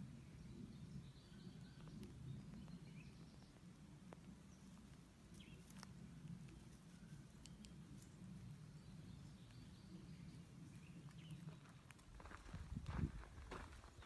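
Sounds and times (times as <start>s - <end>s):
soft clicks: 7.3s - 8.1s.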